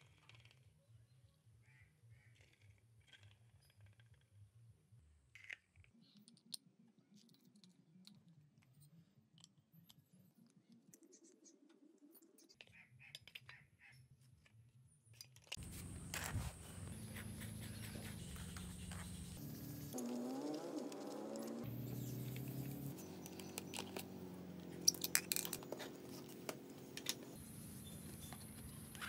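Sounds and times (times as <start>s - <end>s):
plastic parts being handled: 24.7s - 27.4s.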